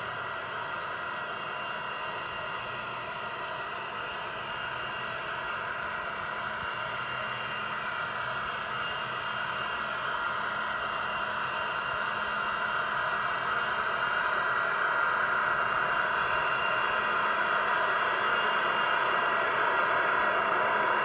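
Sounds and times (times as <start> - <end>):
model locomotive fan hiss: 0.0 - 21.0.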